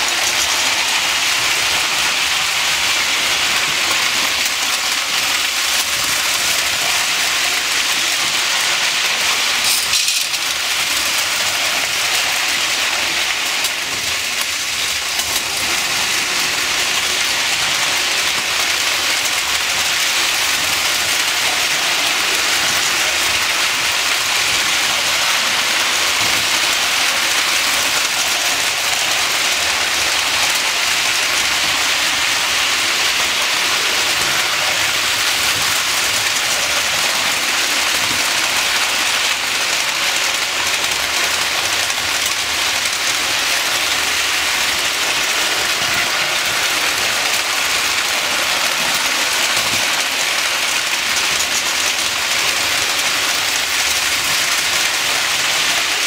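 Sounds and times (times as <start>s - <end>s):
toy trains running on metal track: 0.0s - 56.0s.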